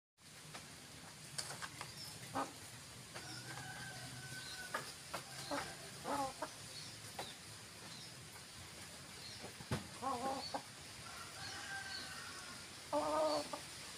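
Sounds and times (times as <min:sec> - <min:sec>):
hen clucking: 0:02.2 - 0:04.0, 0:04.6 - 0:06.6, 0:09.8 - 0:13.8.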